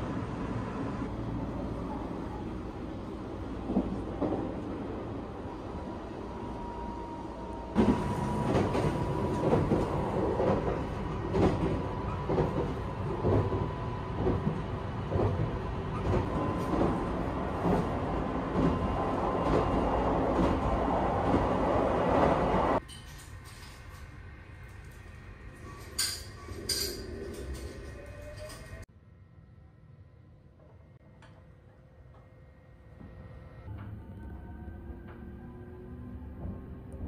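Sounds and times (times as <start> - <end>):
train interior rumble: 0.0 - 28.9, 32.8 - 37.0.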